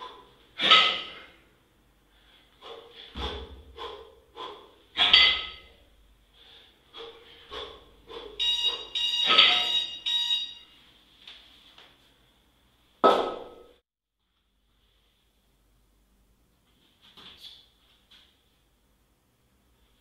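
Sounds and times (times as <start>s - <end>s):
hard rhythmic breathing: 0.0s - 9.9s
electronic timer beeps: 8.4s - 10.8s.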